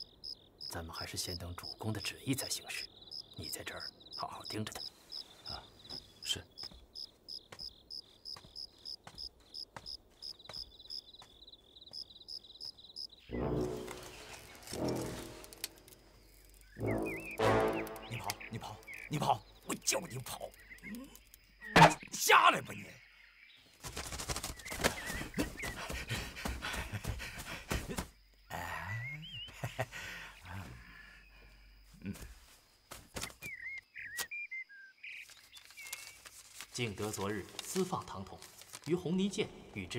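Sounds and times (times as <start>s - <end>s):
crickets chirping: 0.0s - 39.9s
high warbling chirps: 13.3s - 21.0s
footsteps running through grass: 13.4s - 15.8s, 23.7s - 28.1s
man breathing heavily: 25.0s - 28.1s, 29.9s - 31.6s.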